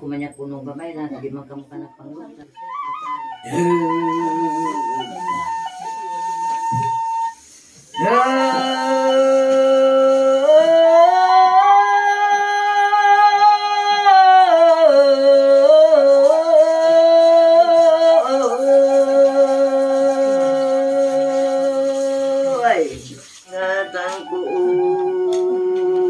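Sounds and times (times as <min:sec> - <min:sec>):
bamboo flute: 0:02.4 - 0:26.0
wordless vocal chant: 0:03.4 - 0:06.0, 0:08.0 - 0:26.0.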